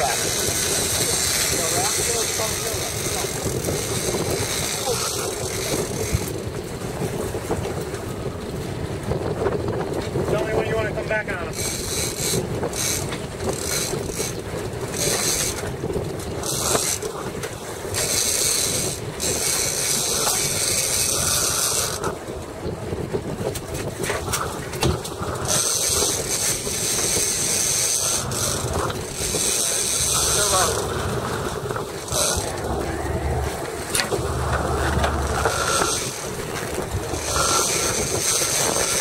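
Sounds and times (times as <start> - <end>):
fishing reel whirring and ratcheting: 0.0 - 6.6, 11.5 - 22.2, 25.1 - 39.0
boat noise: 0.0 - 39.0
wind: 0.0 - 39.0.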